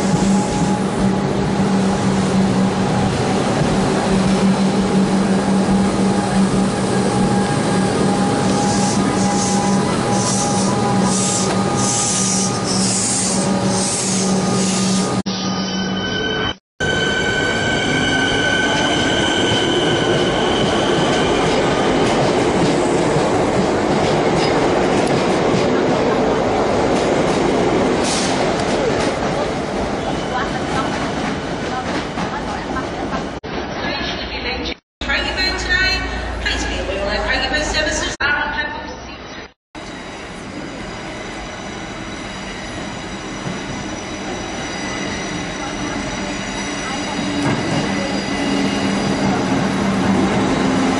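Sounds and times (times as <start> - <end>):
high-pitched train whine: 0.0 - 22.0, 39.8 - 50.9.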